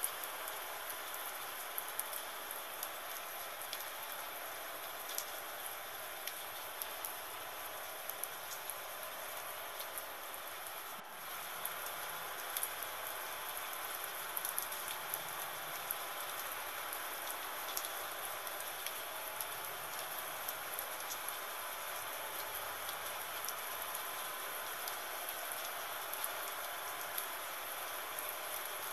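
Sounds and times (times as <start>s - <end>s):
raindrops ticking: 0.0s - 4.3s, 4.9s - 7.2s, 17.2s - 28.9s
gentle rain falling: 0.0s - 28.9s.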